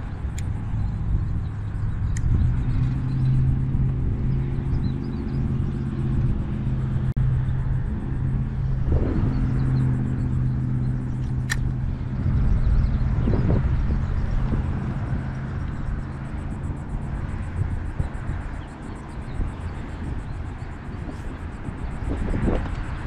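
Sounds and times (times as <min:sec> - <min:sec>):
low engine hum: 0:00.0 - 0:23.0
wind rumble: 0:00.0 - 0:23.0
sharp click: 0:02.1 - 0:02.4, 0:11.2 - 0:11.8.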